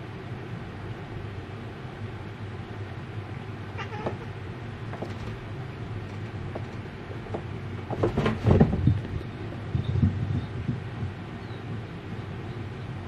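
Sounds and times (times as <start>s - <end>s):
low background hum: 0.0s - 13.0s
thumps: 4.9s - 9.2s
cardboard boxes knocking and rustling: 6.1s - 9.0s.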